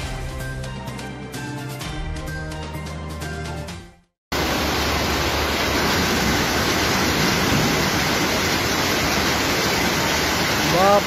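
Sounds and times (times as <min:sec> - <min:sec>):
floodwater rushing: 0:04.3 - 0:11.0.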